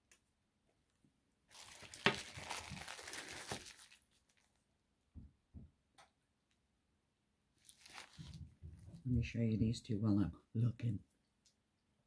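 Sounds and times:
plastic wrap crinkling and tearing: 0:01.5 - 0:04.6, 0:07.6 - 0:08.5.

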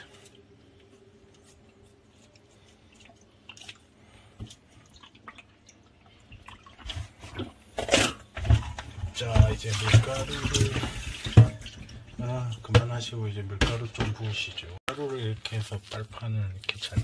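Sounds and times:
water sloshing in a plastic basin: 0:02.2 - 0:17.0
small water splashes: 0:02.8 - 0:07.5, 0:09.3 - 0:12.2.

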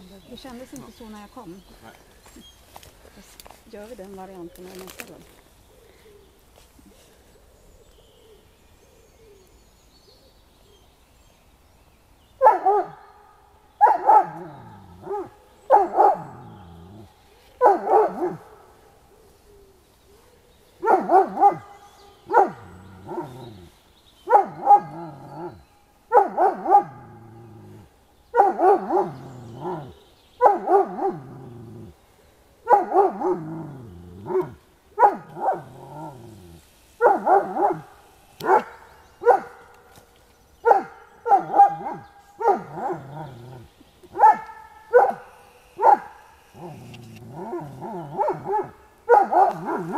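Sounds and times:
dog barking: 0:12.4 - 0:13.0, 0:13.8 - 0:16.5, 0:17.6 - 0:18.6, 0:20.8 - 0:23.5, 0:24.3 - 0:27.1, 0:28.4 - 0:31.4, 0:32.6 - 0:33.6, 0:34.2 - 0:36.1, 0:37.0 - 0:39.8, 0:40.6 - 0:43.1, 0:44.2 - 0:46.8, 0:47.4 - 0:49.9.

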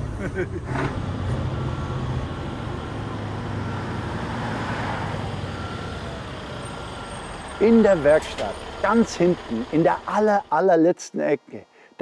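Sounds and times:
street traffic: 0:00.0 - 0:10.8
truck diesel engine running: 0:00.9 - 0:10.5.

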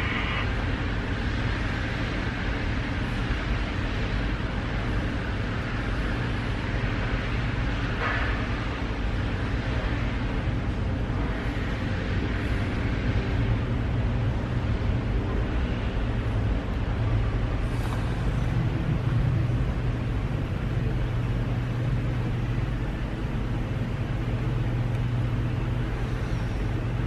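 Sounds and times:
fire truck engine rumbling: 0:13.4 - 0:27.0.

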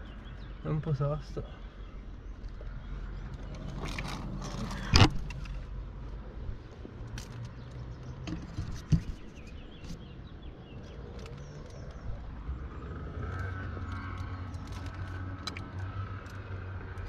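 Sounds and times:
light clicks and scrapes: 0:02.4 - 0:05.7, 0:07.0 - 0:10.1.

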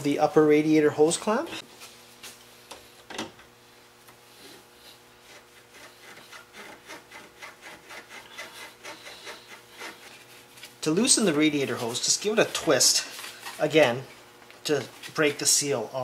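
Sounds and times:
rubbing and scraping on rubber hose: 0:04.4 - 0:15.8.

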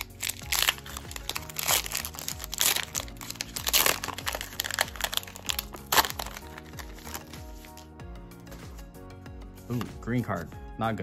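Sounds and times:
foil wrapper crinkling: 0:00.0 - 0:07.9
background music: 0:00.0 - 0:11.0.

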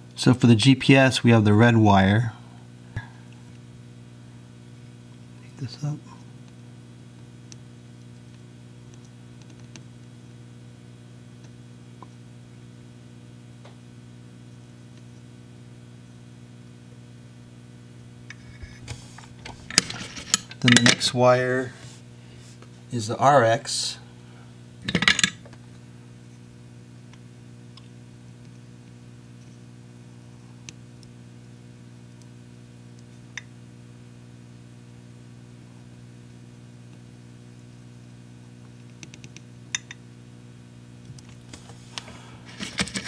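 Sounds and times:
low electrical hum: 0:00.0 - 0:43.0.

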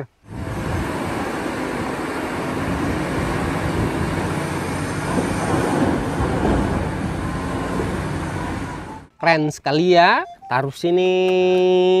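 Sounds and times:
excavator engine and machinery rumble: 0:00.2 - 0:09.1.

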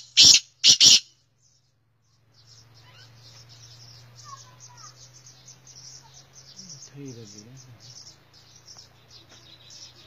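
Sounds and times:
rapid high-pitched chirping: 0:00.0 - 0:01.1.

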